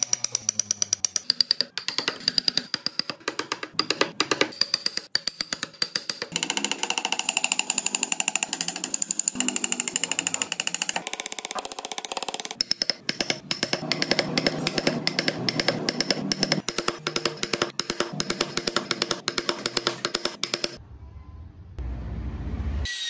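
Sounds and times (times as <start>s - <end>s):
chisel cutting wood: 0.0s - 20.8s.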